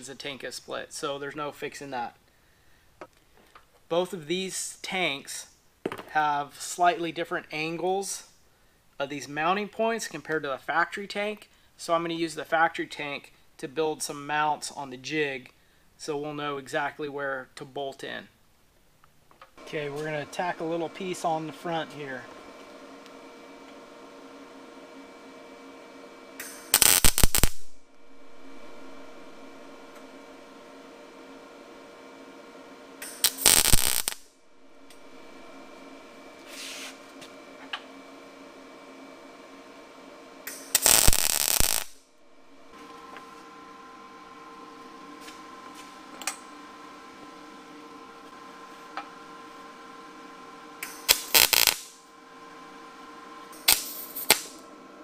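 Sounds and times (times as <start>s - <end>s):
steady electrical hum: 0.0s - 55.0s
soft hiss: 26.4s - 30.5s, 33.0s - 37.0s, 40.5s - 42.7s, 50.8s - 52.0s, 53.6s - 54.6s
welding arc crackling: 26.4s - 31.0s, 33.0s - 36.9s, 40.5s - 42.8s, 50.8s - 52.0s, 53.6s - 54.6s.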